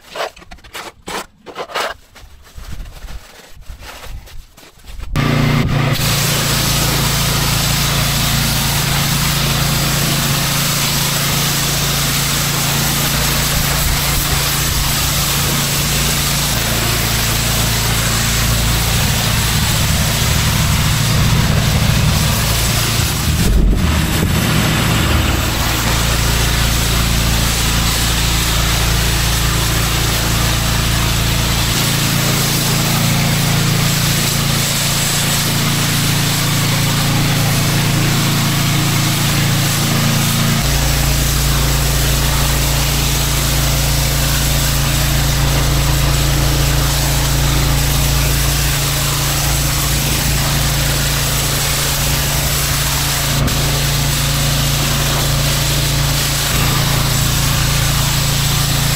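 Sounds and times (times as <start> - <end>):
pressure washer engine hum: 5.2 - 58.9
water jet hissing on pavement: 5.2 - 58.9.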